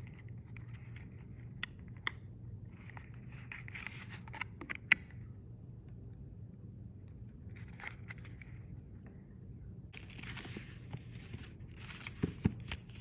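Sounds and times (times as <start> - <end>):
paper packaging rustling: 10.0 - 13.0.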